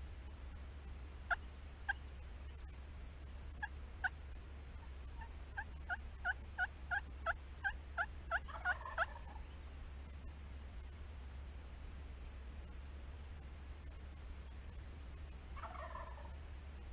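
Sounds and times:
turkey yelping: 1.3 - 2.6, 3.5 - 4.2, 4.8 - 9.5, 15.6 - 16.3.

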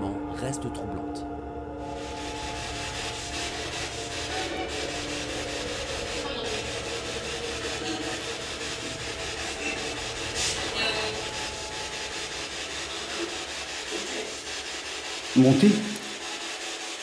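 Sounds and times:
choppy radio static: 2.4 - 14.5.

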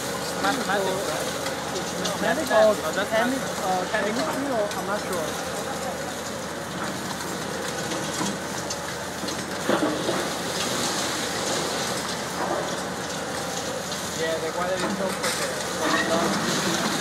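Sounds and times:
excavator crushing concrete: 0.0 - 17.0
falling debris clattering: 14.8 - 17.0.

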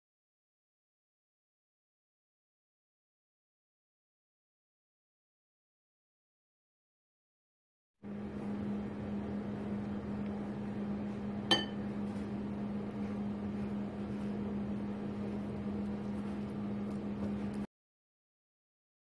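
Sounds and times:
appliance humming: 8.0 - 17.7
utensil clinking against dish: 11.5 - 11.8.

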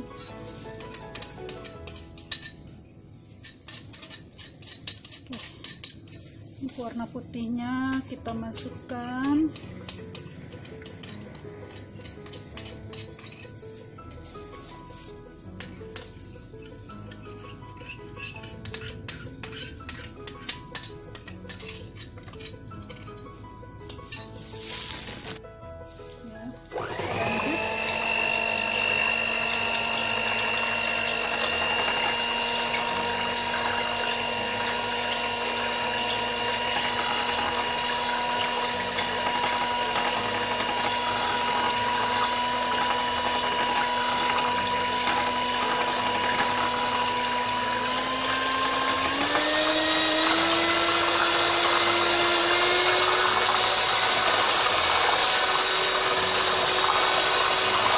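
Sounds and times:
spoon clinking against bowl: 0.7 - 2.8, 7.9 - 13.6, 15.6 - 23.3
electric hand mixer whining: 26.5 - 57.9.

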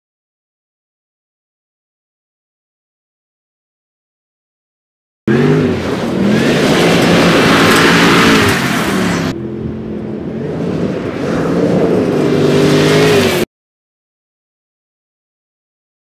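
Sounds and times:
tyres churning through mud: 5.3 - 13.4
truck engine revving: 5.3 - 13.5.

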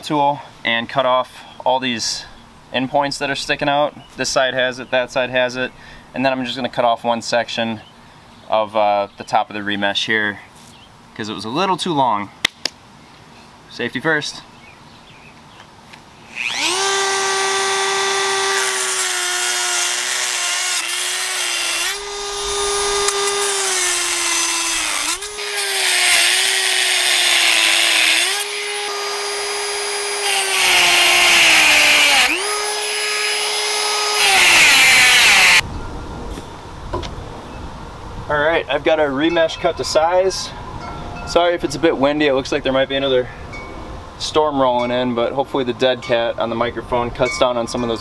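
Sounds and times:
cutting wheel grinding steel wire: 16.3 - 35.6
rotary tool whining: 16.3 - 35.6.

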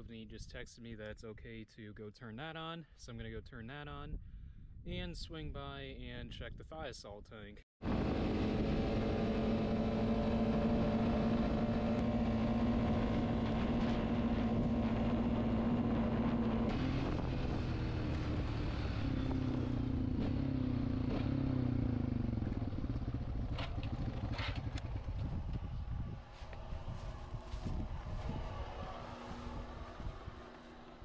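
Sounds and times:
atv engine running: 7.8 - 31.0.

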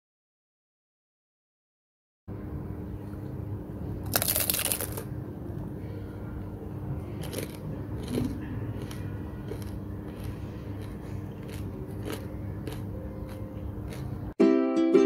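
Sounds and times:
fried pastry crunching: 4.0 - 5.2, 7.0 - 14.4.

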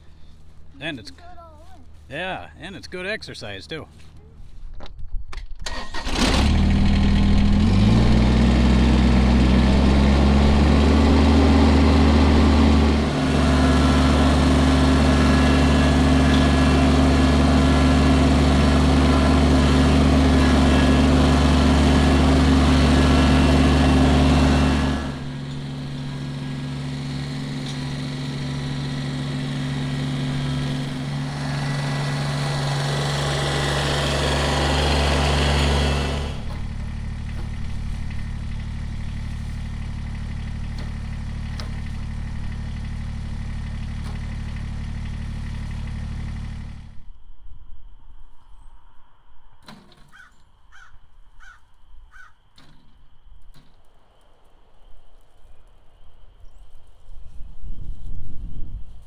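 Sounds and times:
diesel engine running: 0.0 - 4.5, 5.6 - 47.1
diesel engine starting: 5.6 - 47.1.

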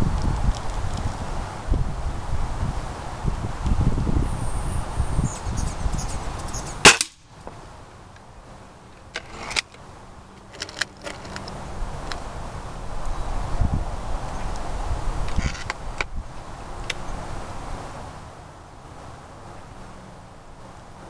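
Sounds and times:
air rifle shot: 6.8 - 7.2.

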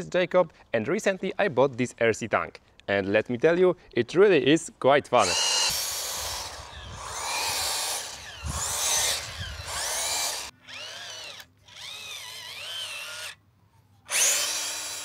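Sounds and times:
toy tank electric motors whining: 5.2 - 13.4, 14.1 - 15.0.

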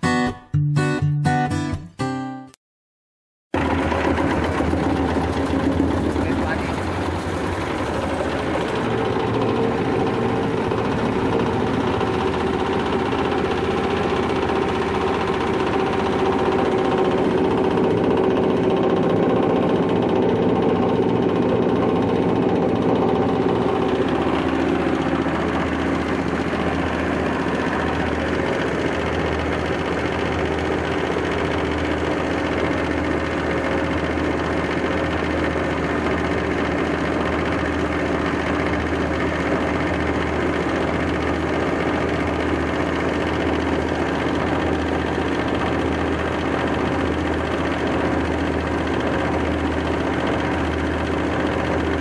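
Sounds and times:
grinding mill running: 3.6 - 52.0.

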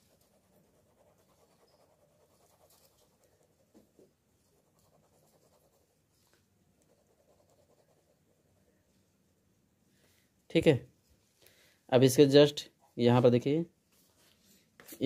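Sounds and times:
pen scratching on paper: 0.0 - 6.0, 6.8 - 8.6.

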